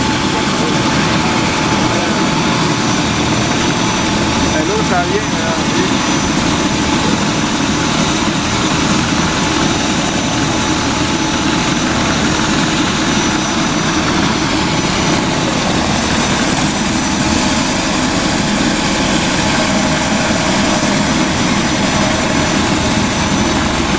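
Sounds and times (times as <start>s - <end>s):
helicopter hovering: 0.0s - 23.9s.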